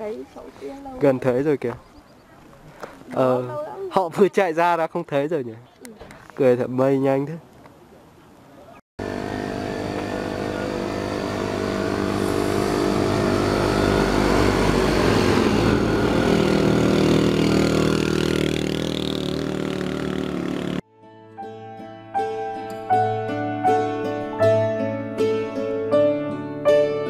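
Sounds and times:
motorbike passing: 9.0s - 20.8s
vehicle engine running: 9.0s - 20.8s.

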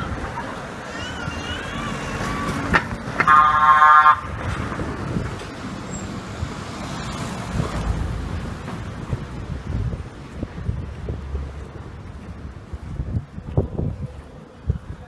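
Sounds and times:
engine noise: 0.0s - 14.8s
wind: 0.0s - 15.0s
horn toot: 3.2s - 4.3s.

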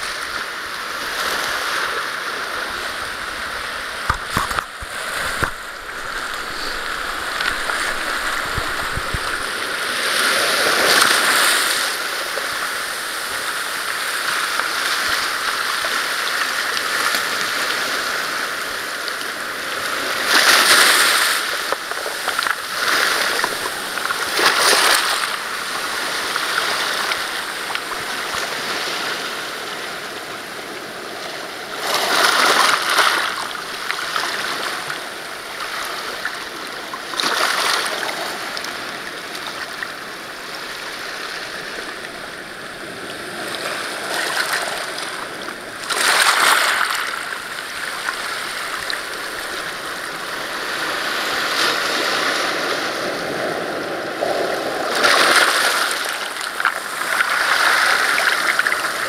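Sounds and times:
surf breaking on rocky shore: 0.0s - 59.0s
stones rattling in surf: 4.0s - 11.5s, 45.8s - 49.5s.

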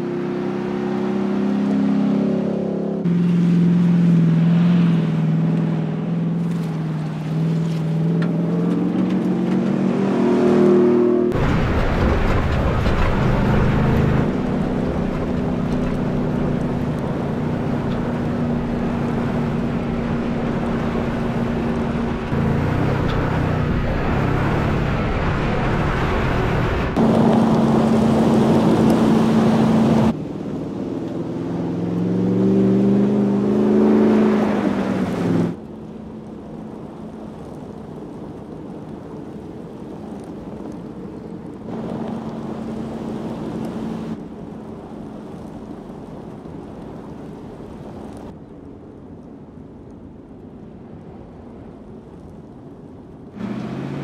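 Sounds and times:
pickup engine revving: 53.4s - 54.0s.

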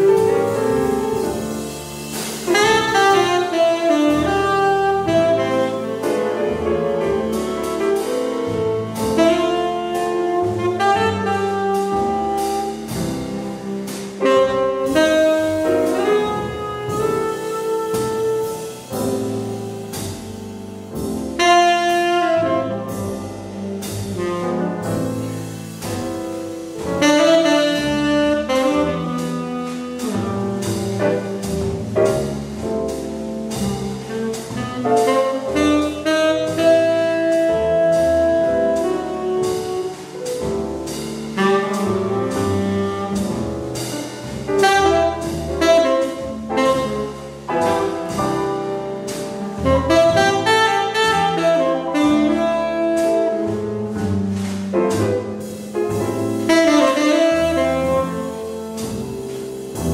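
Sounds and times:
double bass: 0.0s - 59.9s
piano: 0.0s - 59.9s
tenor saxophone melody: 2.5s - 6.1s, 9.2s - 12.9s, 14.2s - 18.6s, 21.4s - 22.9s, 27.0s - 30.7s, 34.1s - 40.1s, 44.6s - 48.4s, 49.6s - 54.0s, 56.3s - 58.8s.

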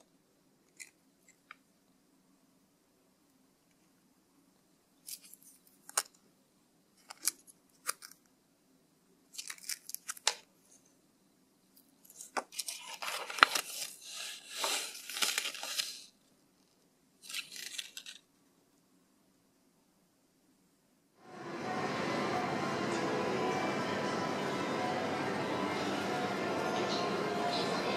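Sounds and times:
packaging crinkling: 9.4s - 10.4s, 12.1s - 16.2s, 17.2s - 18.3s.

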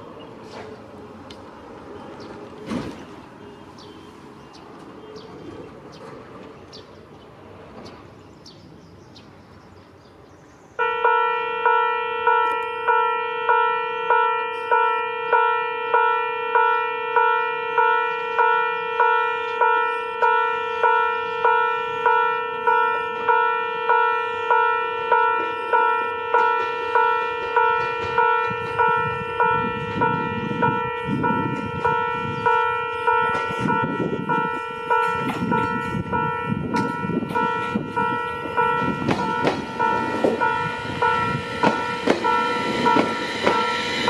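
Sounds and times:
birds chirping: 0.0s - 10.8s
faint train running: 0.0s - 44.0s
level crossing bell clanging: 32.6s - 44.0s.

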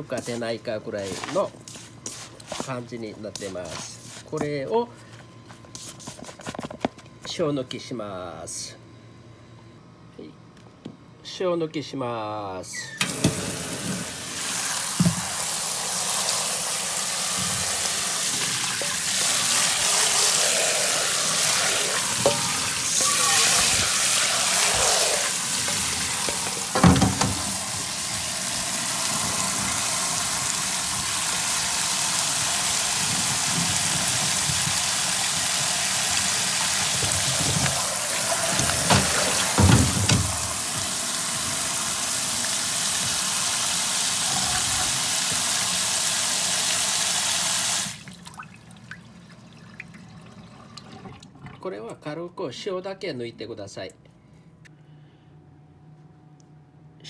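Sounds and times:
tap water running: 13.0s - 51.6s.

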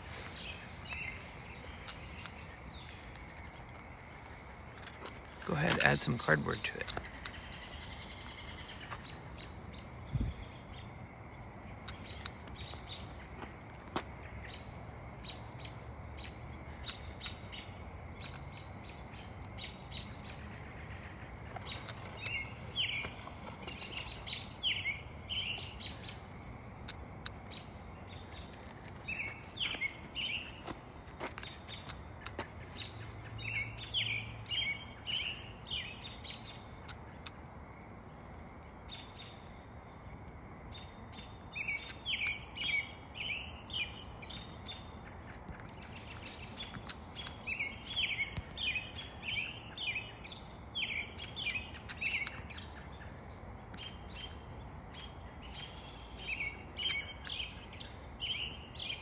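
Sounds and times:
bird chirping: 0.0s - 37.4s, 38.9s - 59.0s
sharp clicks: 5.7s - 7.4s.

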